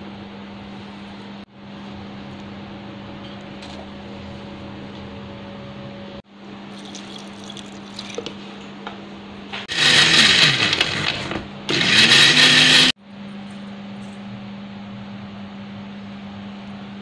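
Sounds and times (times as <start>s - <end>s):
electric blender running: 9.7s - 13.0s.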